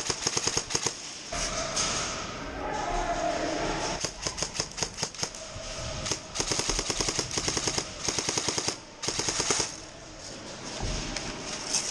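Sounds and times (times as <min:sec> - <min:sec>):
airsoft gun firing: 0:06.0 - 0:09.8.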